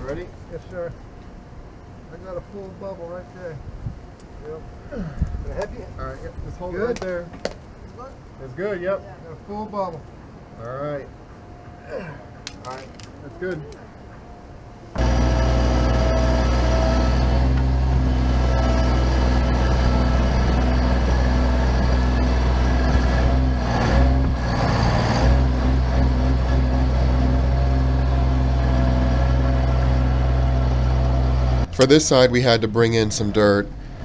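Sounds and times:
diesel engine running under load: 0:15.0 - 0:31.9, 0:33.6 - 0:34.0.

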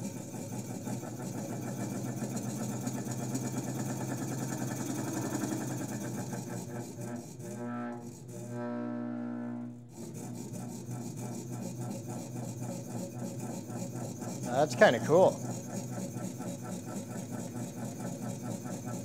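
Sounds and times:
diaphragm pump running: 0:00.0 - 0:19.0.

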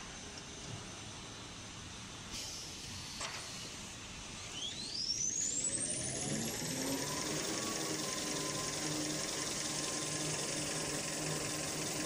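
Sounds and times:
high machine whine: 0:04.3 - 0:12.0
machine humming: 0:04.6 - 0:12.0.

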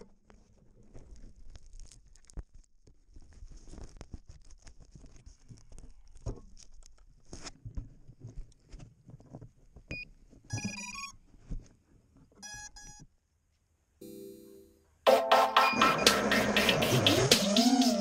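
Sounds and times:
stepped electronic beeps: 0:14.0 - 0:18.0.

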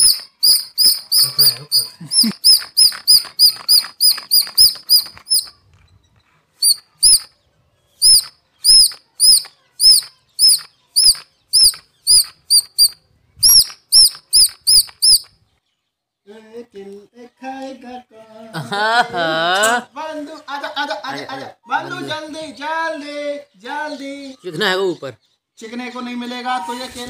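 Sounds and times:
toy horse squeaking: 0:00.0 - 0:05.6, 0:06.6 - 0:07.3, 0:08.0 - 0:15.3.

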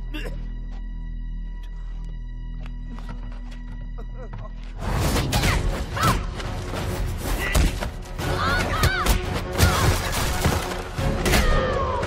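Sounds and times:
dramatic action score: 0:04.1 - 0:12.0.

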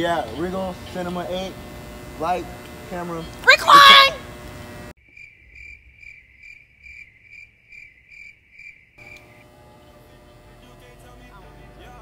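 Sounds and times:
crickets chirping: 0:05.0 - 0:10.6.

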